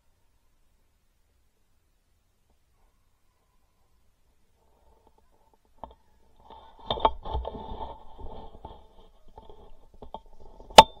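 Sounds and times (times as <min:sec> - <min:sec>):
camera handling rustling and scraping: 0:05.8 - 0:10.9.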